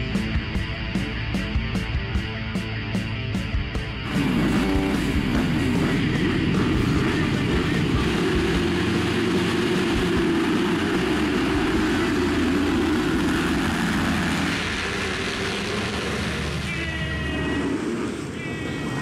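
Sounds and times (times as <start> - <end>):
motocross bikes accelerating: 4.0 - 19.0.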